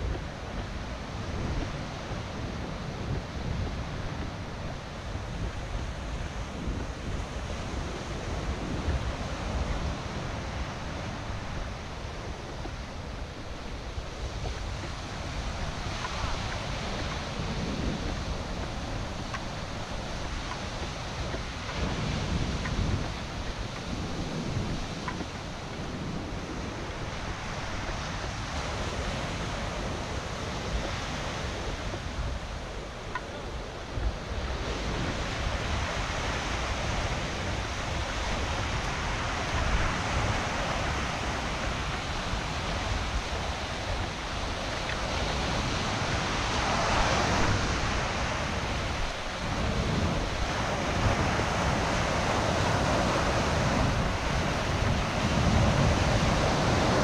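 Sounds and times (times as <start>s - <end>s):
sea surf breaking: 0.0s - 57.0s
wind buffeting microphone: 0.0s - 57.0s.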